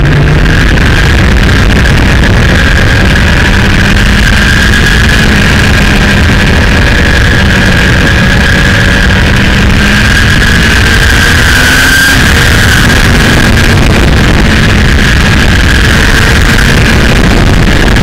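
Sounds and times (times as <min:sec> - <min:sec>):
motorcycle engine running: 0:00.0 - 0:18.0
road noise: 0:00.0 - 0:18.0
wind noise: 0:00.0 - 0:18.0.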